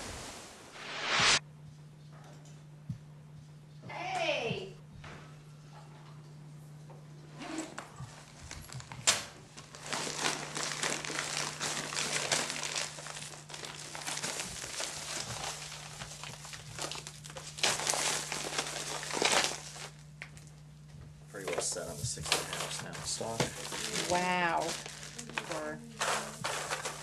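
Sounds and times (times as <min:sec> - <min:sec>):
steady low hum: 0:00.0 - 0:27.0
wrapping being crinkled: 0:08.1 - 0:20.7, 0:21.3 - 0:27.0.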